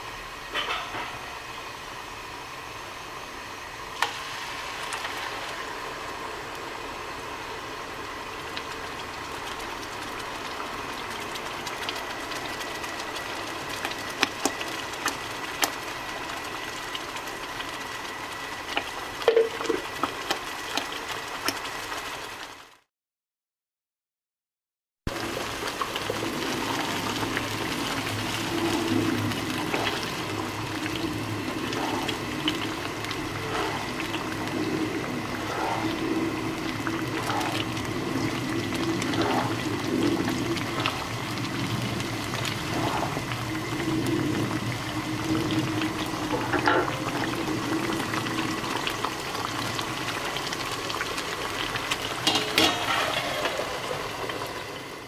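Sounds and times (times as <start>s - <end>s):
paste bubbling and sizzling in oil: 1.3s - 22.9s, 25.1s - 55.0s
spatula scraping pan: 52.2s - 54.0s.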